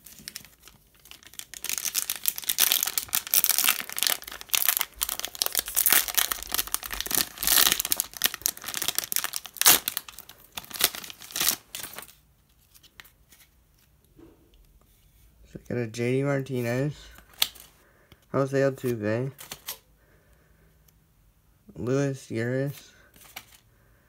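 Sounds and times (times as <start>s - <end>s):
wrapper crinkling and tearing: 0.0s - 13.2s.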